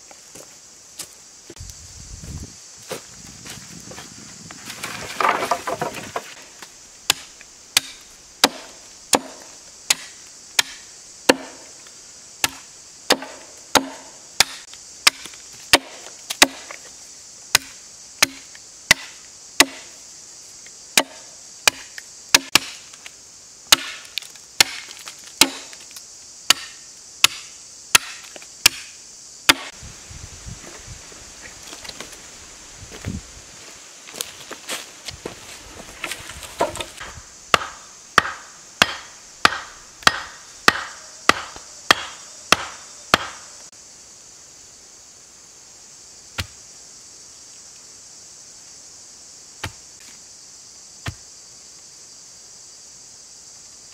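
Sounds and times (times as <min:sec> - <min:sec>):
chopping into a sapling: 0:07.1 - 0:11.7, 0:12.4 - 0:16.8, 0:17.5 - 0:19.9, 0:21.0 - 0:23.0, 0:23.7 - 0:25.9, 0:26.5 - 0:29.8, 0:36.0 - 0:43.5, 0:46.3 - 0:46.6, 0:49.6 - 0:50.2, 0:51.0 - 0:51.2.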